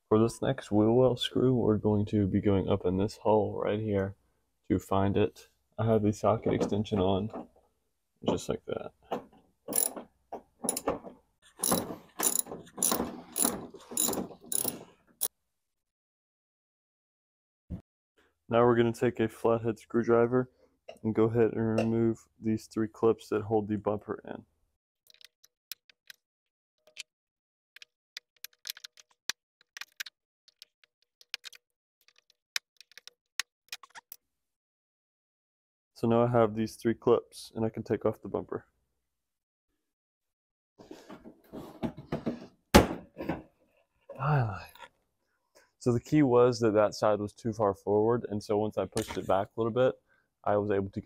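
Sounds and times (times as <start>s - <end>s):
socket ratchet clicking: 9.7s - 10.0s, 11.6s - 14.8s.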